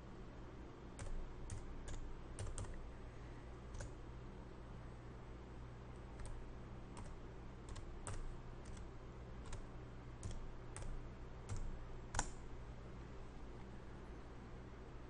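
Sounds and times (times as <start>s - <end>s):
keyboard keys tapping: 1.0s - 2.8s, 3.7s - 4.0s, 7.0s - 12.4s.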